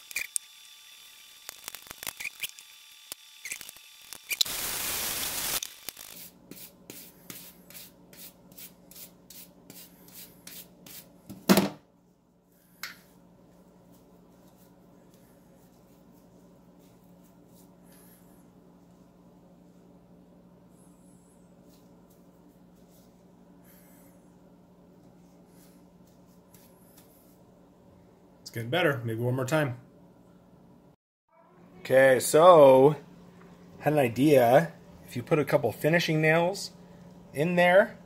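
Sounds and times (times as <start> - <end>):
wire brush scraping paint: 5.9 - 11.1.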